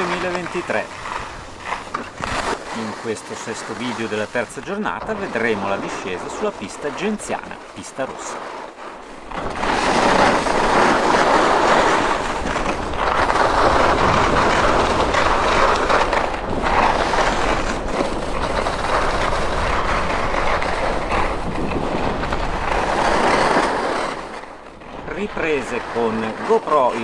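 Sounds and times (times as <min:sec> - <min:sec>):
skis scraping on snow: 0:00.0 - 0:27.0
wind on microphone: 0:09.2 - 0:25.6.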